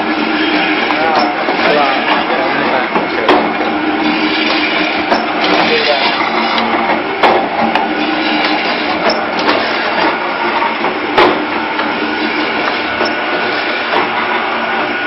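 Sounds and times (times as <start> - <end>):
press machine clattering: 0.0 - 15.0
sharp machine knocks: 6.6 - 10.2, 10.8 - 13.2.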